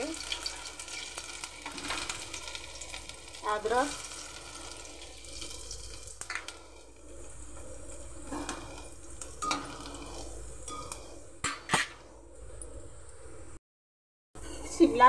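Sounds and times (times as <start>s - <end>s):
garlic sizzling in hot oil: 0.0s - 11.1s.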